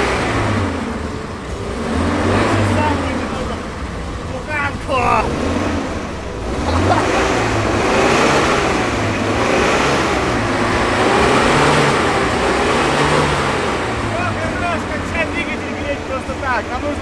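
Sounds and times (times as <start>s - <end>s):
van engine revving: 0.0s - 17.0s.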